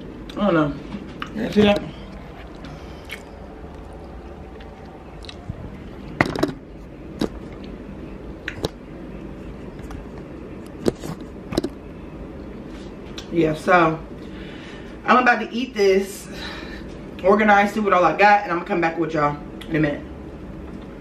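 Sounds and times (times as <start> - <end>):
low steady background noise: 0.0 - 21.0
soft squishy eating sounds: 1.1 - 6.2, 6.8 - 11.5.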